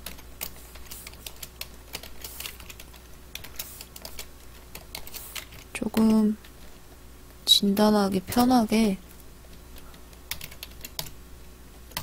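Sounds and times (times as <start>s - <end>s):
computer keyboard typing: 0.0s - 6.3s, 9.8s - 11.2s.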